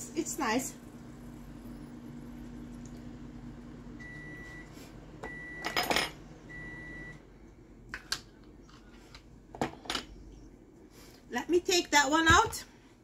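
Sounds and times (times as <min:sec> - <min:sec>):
microwave oven humming: 0:00.0 - 0:11.0
microwave beeps: 0:03.9 - 0:07.3.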